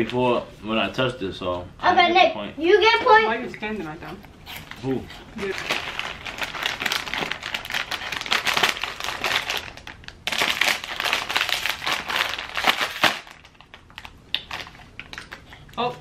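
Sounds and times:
chip bag crinkling: 4.6 - 15.4.

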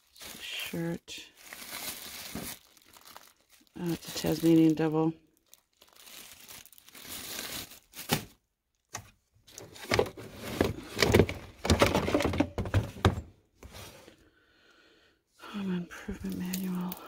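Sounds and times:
thunks and scraping: 9.5 - 14.1
items knocking in a box: 9.7 - 13.3.

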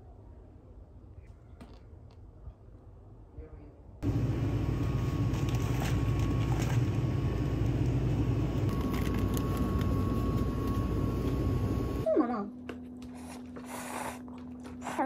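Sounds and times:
rumbling room noise: 4.0 - 12.1
thin steady whine: 4.0 - 13.0.

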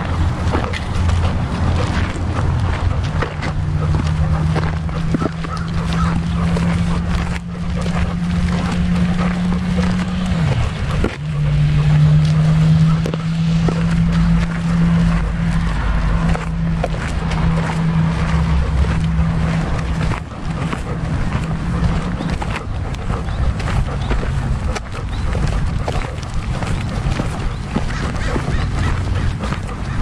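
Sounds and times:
rumbling wind: 0.0 - 30.0
steady low hum: 0.0 - 30.0.

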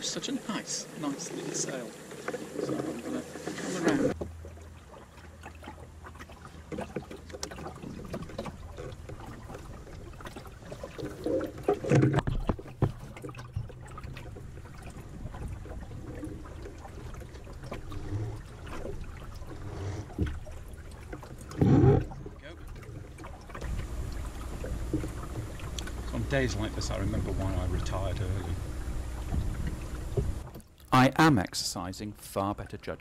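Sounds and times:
water sloshing: 0.0 - 31.0
water lapping against hull: 0.0 - 33.0
low steady rumble: 13.3 - 32.9.

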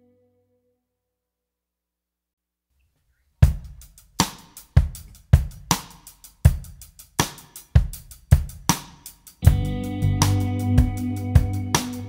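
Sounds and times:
drum kit beat: 3.4 - 12.0.

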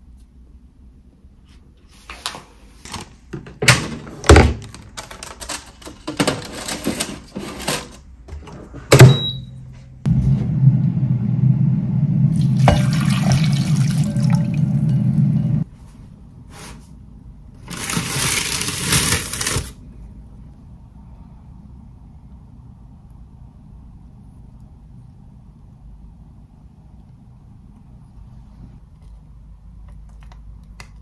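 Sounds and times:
short beep: 9.0 - 9.6
air fryer humming and hissing: 10.1 - 15.6.

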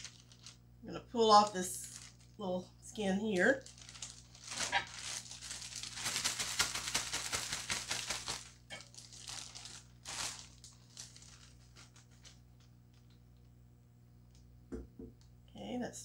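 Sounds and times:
plastic zipper bag crinkling: 0.0 - 0.6, 1.3 - 13.2.

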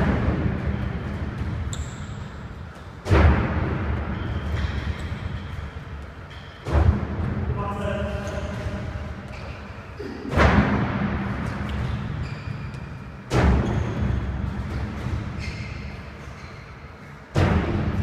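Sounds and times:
heavy thuds echoing in a hall: 0.0 - 18.0.

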